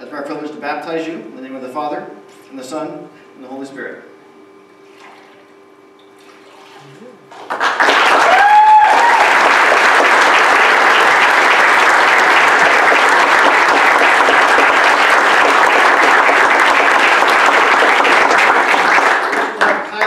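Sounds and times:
congregation applauding: 0:07.3 - 0:20.0.

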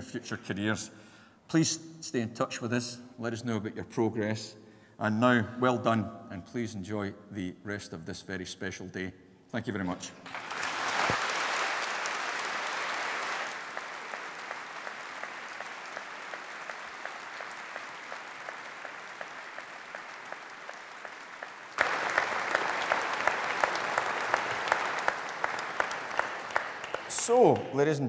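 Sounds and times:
audience applauding: 0:10.2 - 0:28.0.

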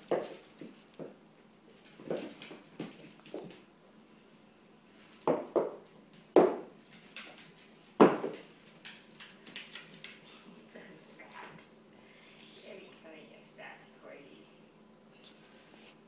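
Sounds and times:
knocks and thuds on wooden floor: 0:08.0 - 0:08.4.

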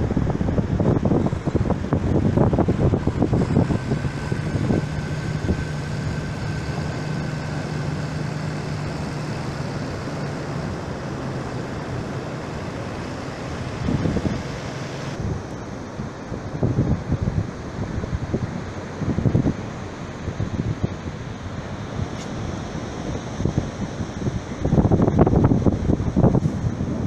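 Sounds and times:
tractor diesel engine running: 0:00.0 - 0:16.2
surf hissing: 0:00.0 - 0:26.9
wind buffeting microphone: 0:00.0 - 0:27.0.

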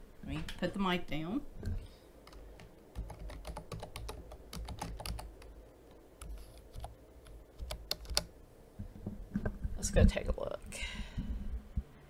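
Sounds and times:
computer keyboard typing: 0:02.2 - 0:05.6, 0:06.2 - 0:08.3.

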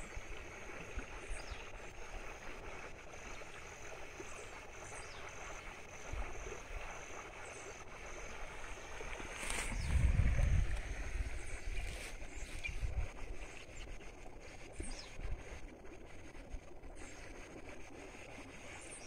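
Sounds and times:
wind gust on microphone: 0:09.4 - 0:13.6.

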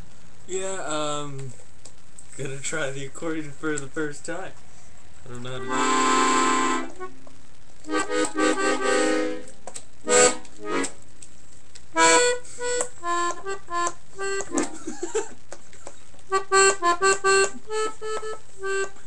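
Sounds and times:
accordion played haltingly: 0:05.6 - 0:07.1, 0:07.9 - 0:09.5, 0:10.1 - 0:11.0, 0:12.0 - 0:14.9, 0:16.3 - 0:19.0.

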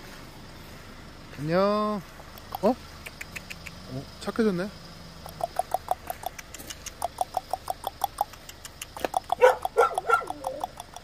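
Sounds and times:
dog crying high-pitched: 0:09.4 - 0:10.6.

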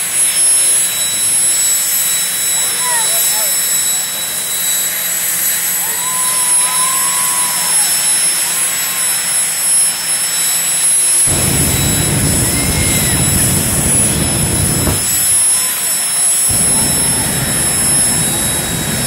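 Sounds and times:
turbine engine whining: 0:00.0 - 0:19.0
afterburner low rumble: 0:11.3 - 0:15.8, 0:16.5 - 0:19.0.

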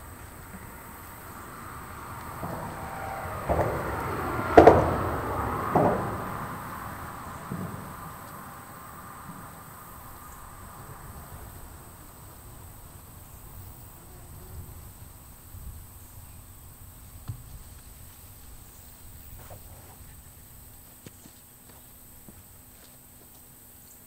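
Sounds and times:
low rumble: 0:00.0 - 0:13.0
high insect buzz: 0:08.1 - 0:15.2.

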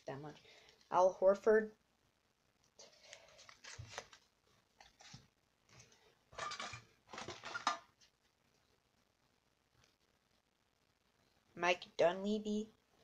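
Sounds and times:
trading cards rustling and clicking: 0:02.9 - 0:06.0.

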